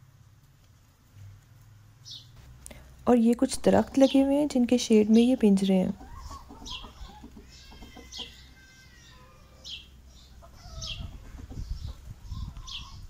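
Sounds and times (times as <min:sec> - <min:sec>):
chickens clucking: 0:03.8 - 0:13.0.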